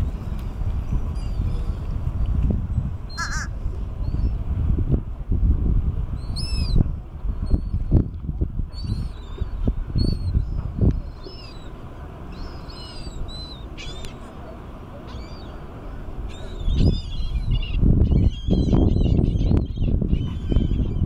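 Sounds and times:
low uneven rumble: 0:00.0 - 0:18.2
seagulls calling: 0:03.1 - 0:03.5, 0:11.1 - 0:21.0.

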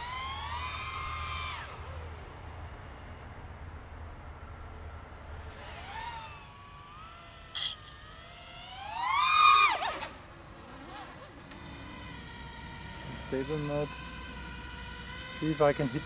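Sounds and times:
quadcopter motors whining: 0:00.0 - 0:02.8, 0:05.0 - 0:16.0.

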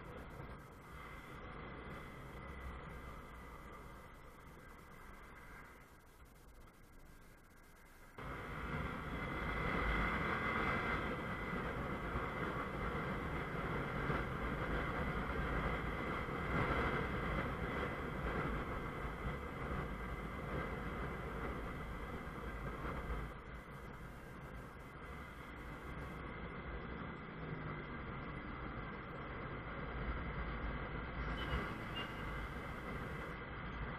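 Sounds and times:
motorcycle riding noise: 0:08.2 - 0:33.9.

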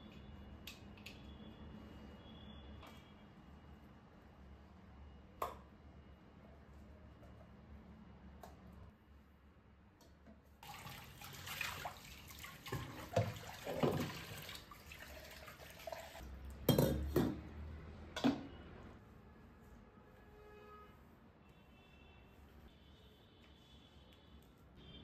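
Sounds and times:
tap water running into sink: 0:10.6 - 0:16.2.

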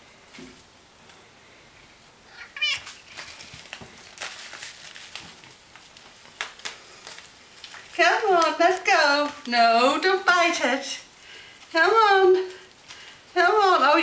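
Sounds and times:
cat meowing: 0:02.3 - 0:03.0
plastic pouch crinkling: 0:02.5 - 0:09.6.

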